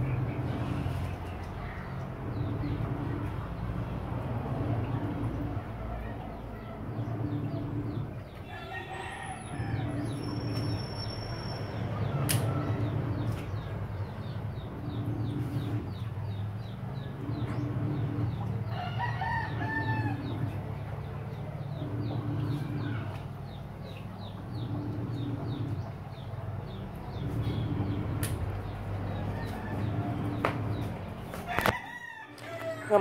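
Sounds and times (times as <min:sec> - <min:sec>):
steady low hum: 0:00.0 - 0:31.9
rooster crowing: 0:08.4 - 0:10.6, 0:18.7 - 0:20.5, 0:31.4 - 0:33.0.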